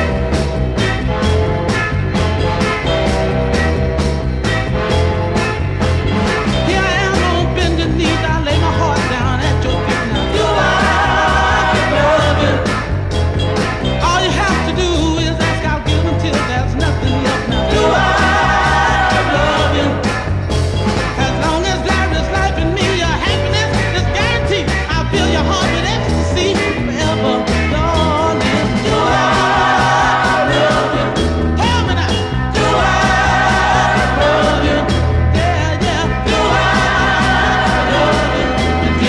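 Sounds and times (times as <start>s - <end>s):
soul record with singing: 6.6s - 12.8s, 14.0s - 20.2s, 21.2s - 39.0s.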